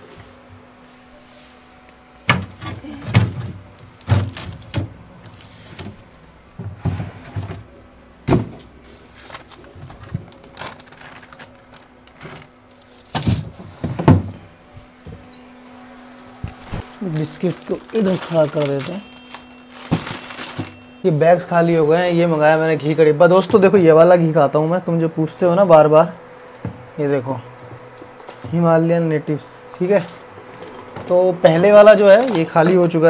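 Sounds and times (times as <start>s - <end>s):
refrigerator low hum: 0.0s - 33.0s
groceries knocking and rustling: 2.3s - 15.3s, 16.3s - 20.9s, 30.2s - 33.0s.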